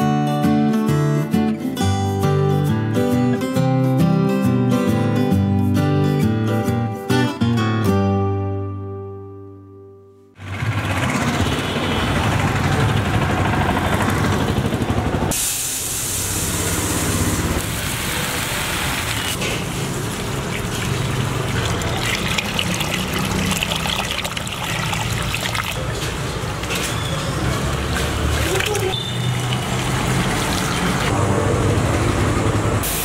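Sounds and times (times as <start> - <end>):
water pouring and splashing: 15.4 - 26.8, 27.4 - 31.1.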